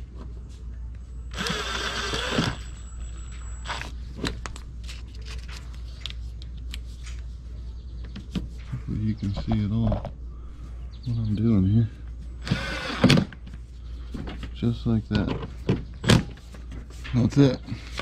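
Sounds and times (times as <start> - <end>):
cordless drill driving screw: 1.3 - 2.7, 12.4 - 13.3.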